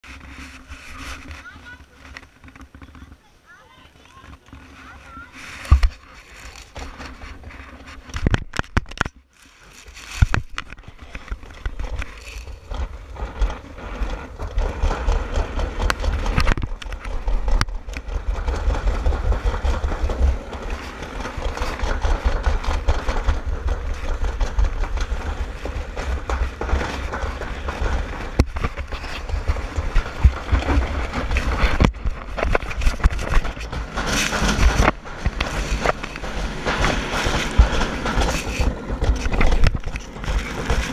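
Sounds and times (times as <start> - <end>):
sled rumbling rattle in metal track: 0.0 - 40.9
sled knocks: 0.1 - 9.1, 9.7 - 40.9
wind buffeting microphone: 10.2 - 40.9.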